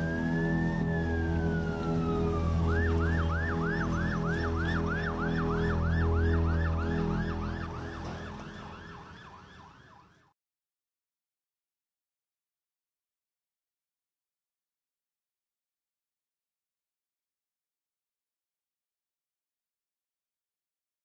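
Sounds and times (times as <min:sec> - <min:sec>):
low steady drone: 0:00.0 - 0:08.8
emergency vehicle siren: 0:00.0 - 0:10.4.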